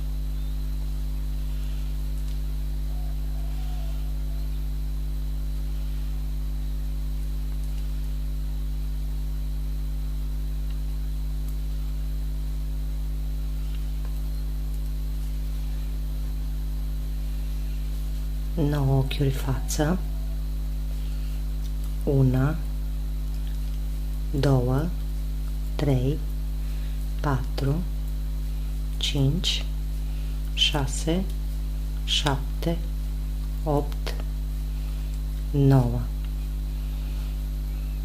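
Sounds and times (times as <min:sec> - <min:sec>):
electrical mains hum: 0:00.0 - 0:38.0.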